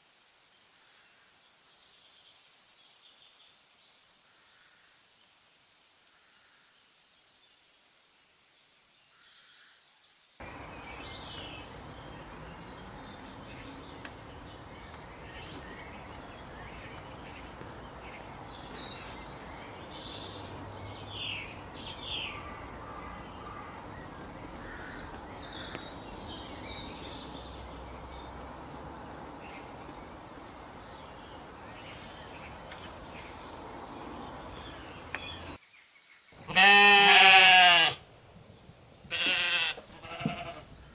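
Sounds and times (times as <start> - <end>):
steady background hiss: 0.0 - 40.9
birds chirping and calling: 10.4 - 35.6.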